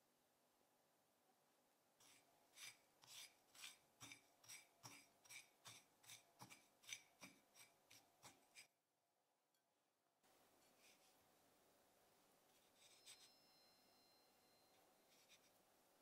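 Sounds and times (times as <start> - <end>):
spatula scraping on ceramic plate: 2.0 - 8.7, 12.6 - 13.4.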